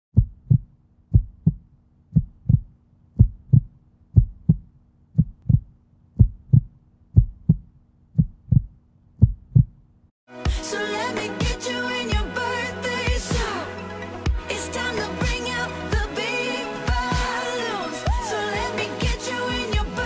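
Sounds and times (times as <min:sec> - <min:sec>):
heartbeat thumps: 0:00.1 - 0:09.8.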